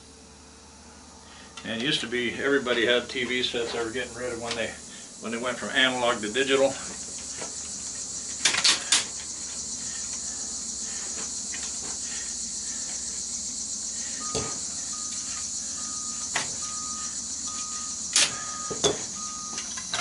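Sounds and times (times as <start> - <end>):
insect chorus chirring: 1.2 - 20.0.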